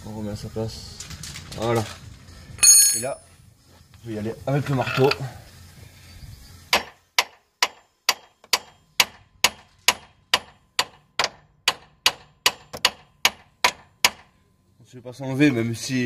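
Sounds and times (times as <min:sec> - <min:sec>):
hammer striking metal: 0:02.6 - 0:03.2, 0:06.7 - 0:14.4.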